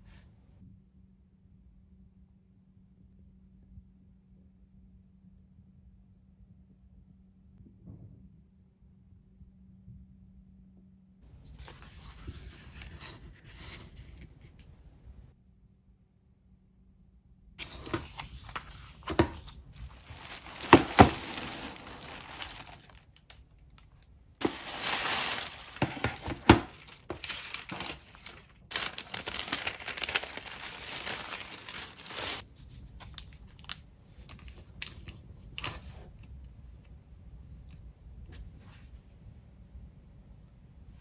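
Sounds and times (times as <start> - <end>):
shopping bag rustling: 17.6 - 23.4, 24.4 - 32.4.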